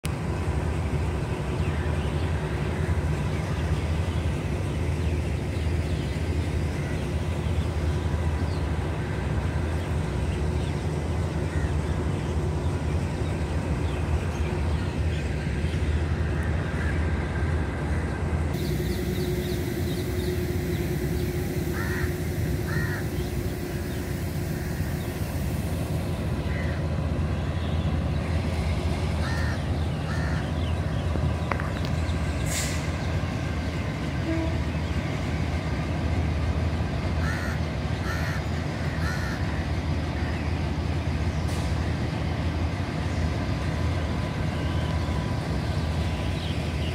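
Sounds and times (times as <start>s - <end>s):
idling diesel locomotive rumble: 0.0s - 46.9s
crows cawing: 21.7s - 23.2s, 29.2s - 30.5s, 37.2s - 39.6s.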